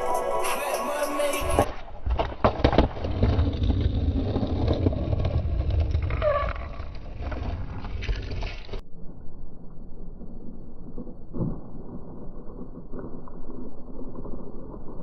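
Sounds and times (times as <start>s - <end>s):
skateboard wheels rolling on concrete: 0.0s - 8.8s.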